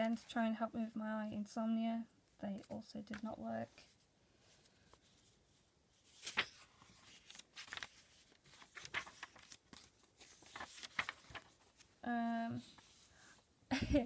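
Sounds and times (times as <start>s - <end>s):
paper rustling: 2.6s - 12.0s, 12.6s - 13.4s
page snapping: 6.2s - 6.6s.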